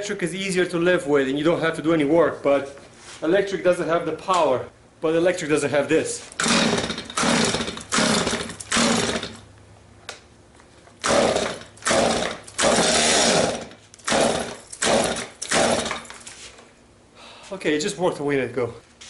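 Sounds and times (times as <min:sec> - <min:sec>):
chainsaw recoil starter pulls: 0:06.4 - 0:09.4, 0:11.0 - 0:16.2
engine turning over: 0:06.4 - 0:09.4, 0:11.0 - 0:16.2.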